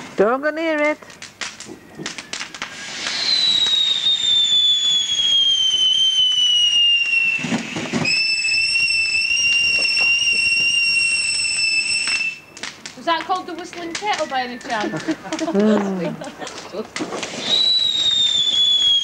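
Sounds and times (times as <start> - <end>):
firework crackles: 0.0 - 19.0
firework whistle: 1.6 - 12.7, 17.0 - 19.0.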